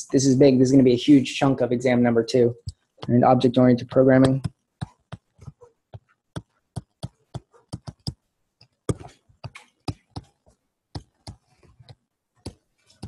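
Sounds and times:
stylus tapping on tablet screen: 0:03.8 - 0:13.0.

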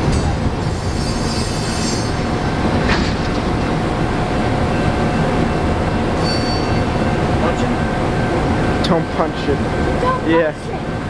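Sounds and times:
train wheels rumbling: 0:00.0 - 0:11.0
short wheel screech: 0:06.2 - 0:07.0.

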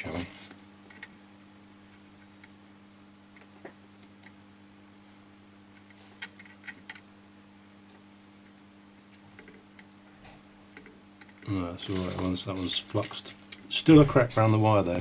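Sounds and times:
steady low hum: 0:00.0 - 0:15.0
flux crackling under soldering iron: 0:10.7 - 0:14.8.

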